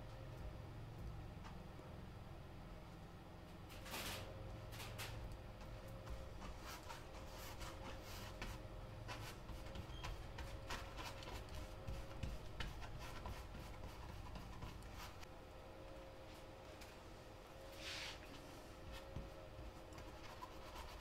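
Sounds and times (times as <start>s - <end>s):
paintbrush scrubbing canvas: 6.1s - 15.3s, 18.8s - 21.0s.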